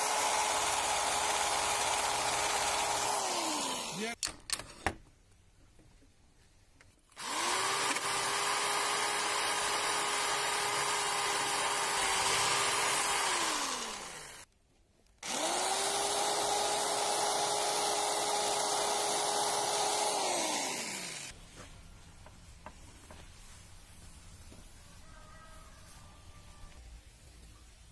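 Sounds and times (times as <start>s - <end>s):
electric drill whining: 0.0s - 4.2s, 7.1s - 14.5s, 15.2s - 21.3s.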